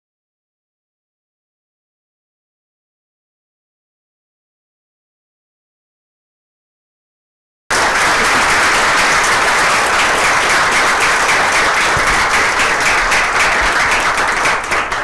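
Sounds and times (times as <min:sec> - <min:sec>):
audience applauding: 0:07.7 - 0:15.0.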